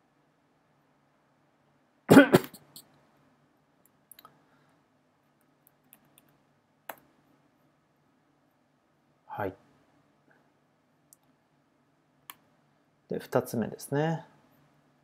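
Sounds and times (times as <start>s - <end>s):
person coughing: 2.1s - 2.8s.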